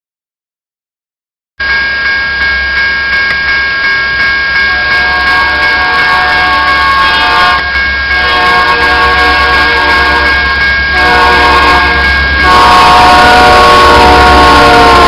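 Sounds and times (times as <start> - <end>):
railroad crossing bell ringing: 1.6 - 15.0
locomotive horn: 4.7 - 15.0.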